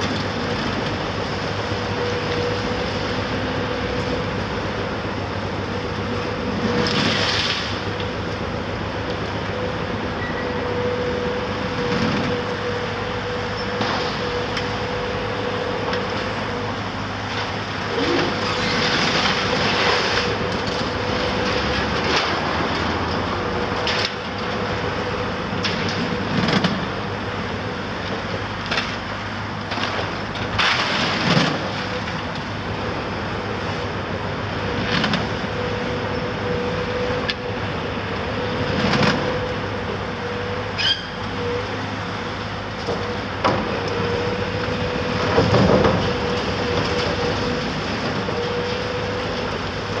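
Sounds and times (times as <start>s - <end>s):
excavator engine humming: 0.0s - 50.0s
debris clattering and crunching: 18.0s - 22.5s.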